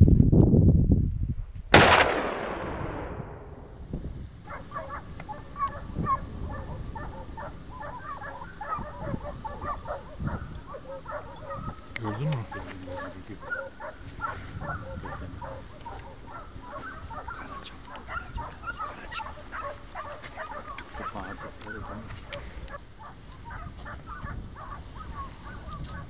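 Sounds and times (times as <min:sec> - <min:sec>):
gunshot echoing: 0:01.7 - 0:03.8
distant hunting dogs baying: 0:04.4 - 0:26.0.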